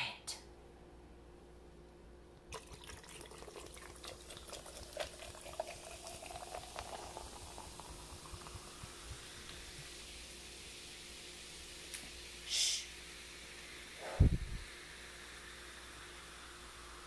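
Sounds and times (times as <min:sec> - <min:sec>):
soda pouring into glass jar: 0:02.5 - 0:17.0
fizz crackling and hissing: 0:02.6 - 0:17.0.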